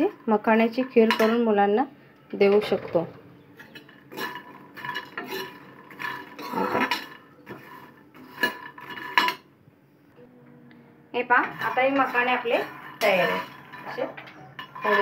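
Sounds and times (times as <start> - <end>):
metal ladle scraping a pan: 3.6 - 9.4, 11.4 - 15.0.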